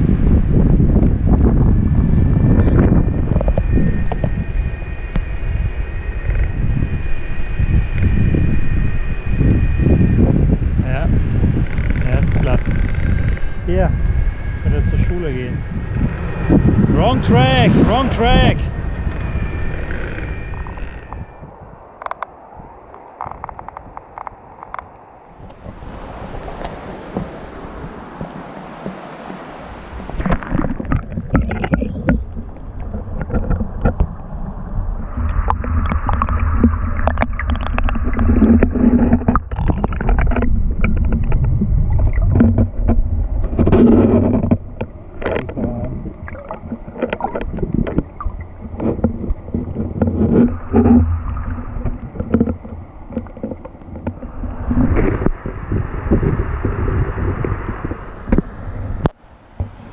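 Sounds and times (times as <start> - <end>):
underwater rumble and gurgle: 0.0 - 59.9
river water rushing: 25.2 - 31.2.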